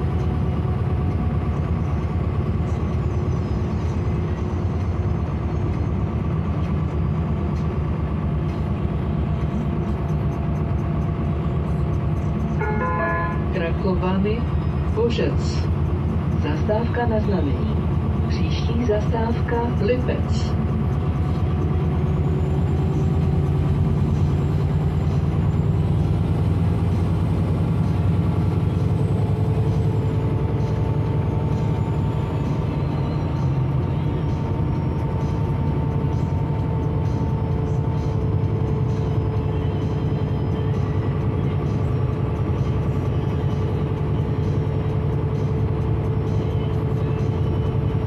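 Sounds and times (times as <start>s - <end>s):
bus engine and road drone: 0.0s - 48.0s
engine whine: 0.0s - 48.0s.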